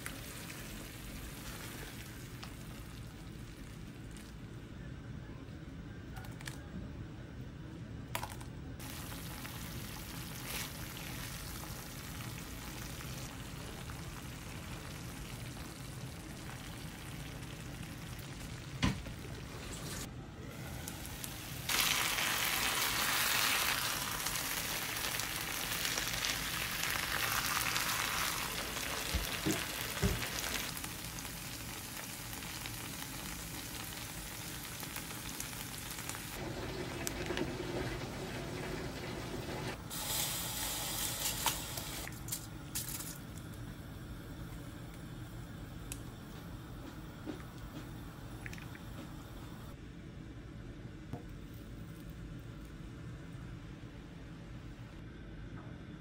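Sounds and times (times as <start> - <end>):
sauce sizzling in a frying pan: 0.0 - 3.2, 8.8 - 18.7, 20.7 - 36.4.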